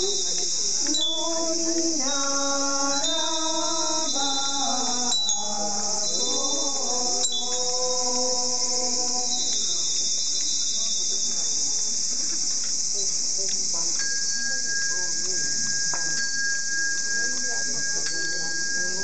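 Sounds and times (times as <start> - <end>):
crickets chirping: 0.0 - 19.0
thin steady tone: 0.0 - 19.0
group chanting: 0.9 - 9.7.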